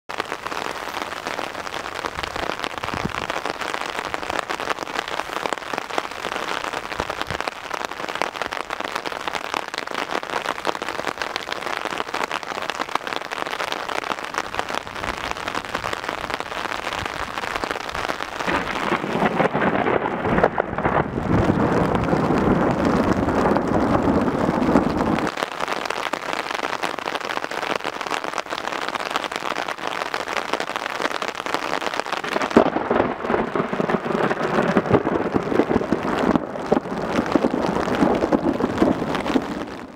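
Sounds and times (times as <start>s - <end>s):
heavy rain falling: 0.1s - 39.9s
low roll of thunder: 18.4s - 25.3s, 32.2s - 39.9s.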